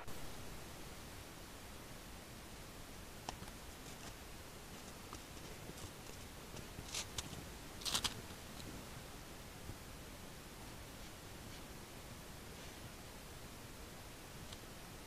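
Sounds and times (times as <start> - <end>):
faint microphone hiss: 0.0 - 15.0
footsteps crunching in snow: 3.8 - 8.2.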